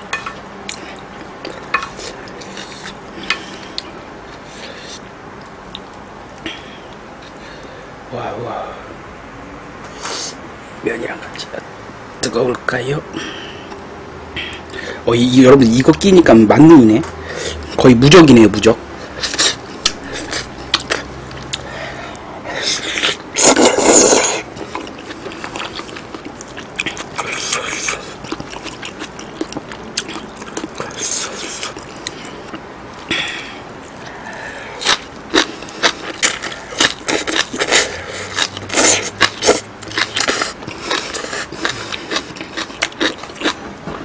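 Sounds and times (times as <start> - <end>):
wet chewing and lip-smacking: 19.2 - 43.6
noodle slurp: 22.6 - 26.0.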